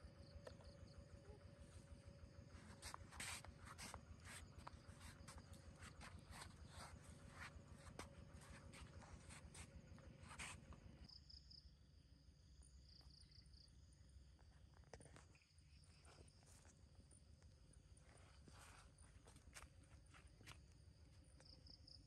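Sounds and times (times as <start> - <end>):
soft steps and rustles: 1.5 - 11.1, 14.8 - 21.8.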